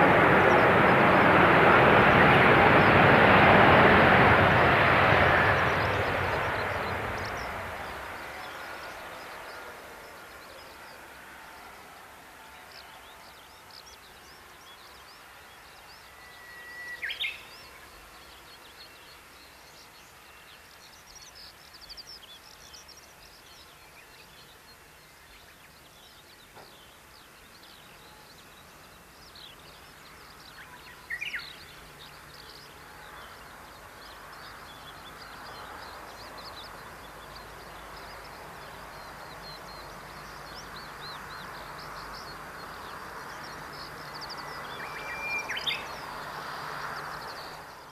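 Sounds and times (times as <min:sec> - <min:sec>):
birds chirping: 0:00.0 - 0:47.9
faint jet whine: 0:00.0 - 0:47.9
jet engines: 0:00.0 - 0:47.9
bird whistling call: 0:44.5 - 0:45.9.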